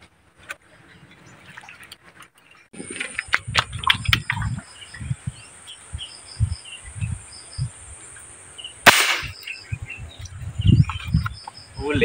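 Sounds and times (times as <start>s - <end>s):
birds chirping: 0.6s - 12.0s
airgun shot: 8.8s - 9.4s.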